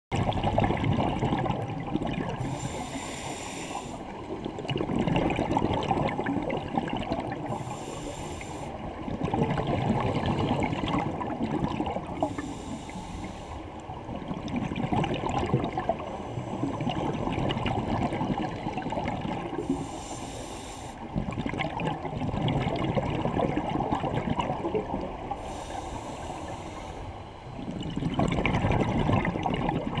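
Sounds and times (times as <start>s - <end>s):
rush of exhaled bubbles: 0.1s - 2.9s, 4.1s - 7.8s, 9.0s - 12.6s, 14.0s - 19.8s, 21.1s - 25.6s, 27.5s - 30.0s
regulator inhale hiss: 2.4s - 4.2s, 7.5s - 8.9s, 12.2s - 13.7s, 19.6s - 21.1s, 25.3s - 27.6s.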